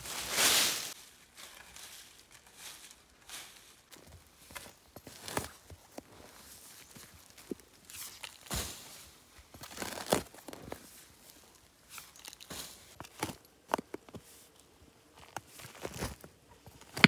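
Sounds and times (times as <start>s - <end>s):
dirt and dry leaves falling: 0.0s - 13.4s.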